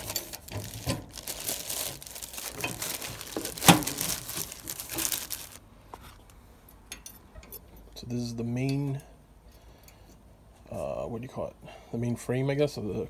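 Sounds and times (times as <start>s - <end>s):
plastic bag crinkling: 0.0s - 6.4s.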